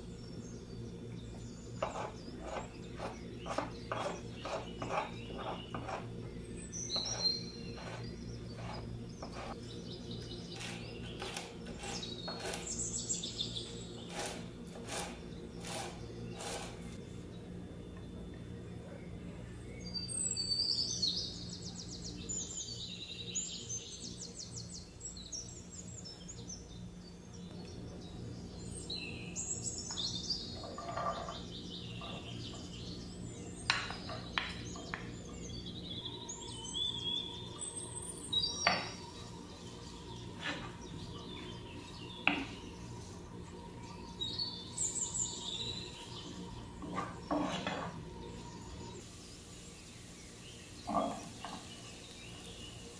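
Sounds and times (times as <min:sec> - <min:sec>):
birds chirping: 0:00.0 - 0:52.9
steady low hum: 0:00.0 - 0:52.9.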